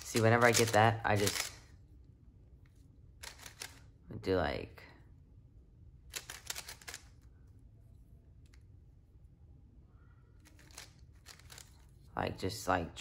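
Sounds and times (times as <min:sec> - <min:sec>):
puzzle cube turning clicks: 0:00.0 - 0:01.6, 0:03.2 - 0:03.8, 0:06.1 - 0:07.1, 0:10.4 - 0:11.8
low steady hum: 0:00.0 - 0:13.0.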